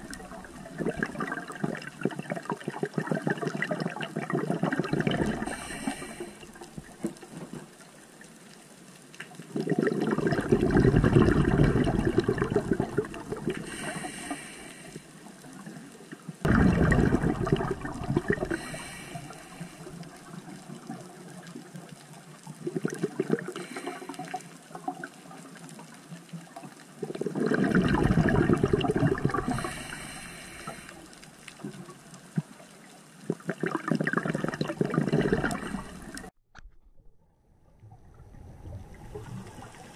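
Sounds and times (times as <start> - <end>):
exhaled bubbles gushing underwater: 0.0 - 7.6, 9.5 - 14.8, 16.4 - 25.7, 26.9 - 32.2, 33.2 - 36.3, 37.0 - 39.9
regulator hiss: 29.5 - 31.0.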